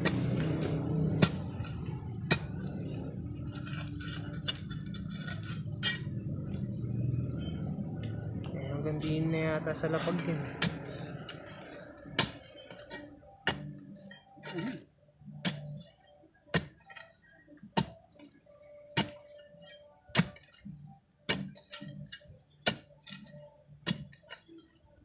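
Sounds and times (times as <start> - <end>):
digging tool striking stony ground: 0.0 - 2.9, 10.1 - 11.4, 12.1 - 17.2, 17.8 - 18.0, 19.0 - 24.5
soil scraping: 0.0 - 6.7, 9.8 - 17.2, 17.8 - 18.3, 19.0 - 24.5.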